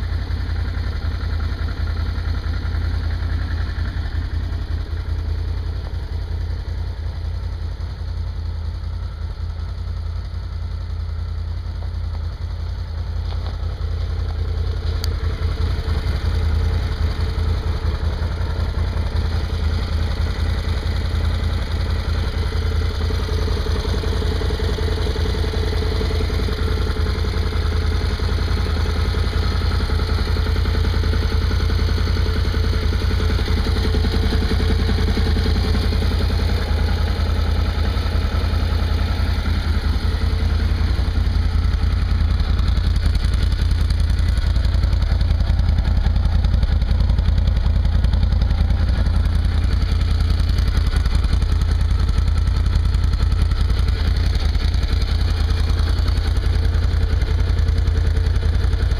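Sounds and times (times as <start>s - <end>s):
atv engine idling: 0.0s - 58.9s.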